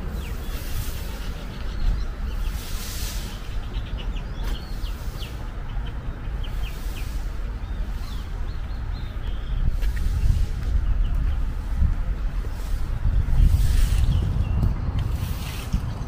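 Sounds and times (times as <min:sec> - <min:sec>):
small birds chirping: 0:00.0 - 0:16.0
steady low rumble: 0:04.8 - 0:16.0.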